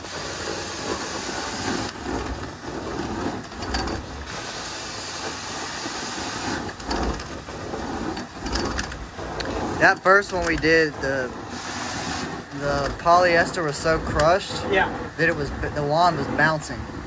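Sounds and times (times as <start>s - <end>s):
carpet cleaning wand hissing: 0.0s - 16.6s.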